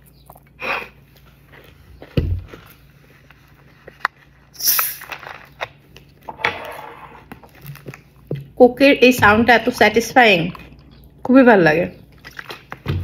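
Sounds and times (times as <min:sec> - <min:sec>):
carbonation hiss: 0:04.5 - 0:05.0.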